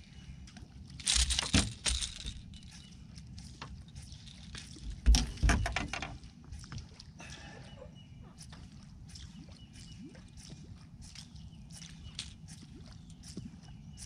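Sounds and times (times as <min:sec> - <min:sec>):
handling knocks and clinks: 0:01.0 - 0:02.8.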